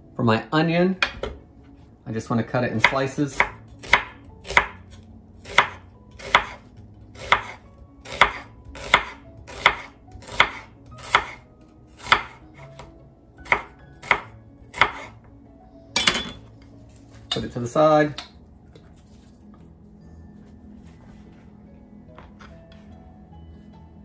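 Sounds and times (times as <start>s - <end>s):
knife slicing onion: 2.7s - 15.2s.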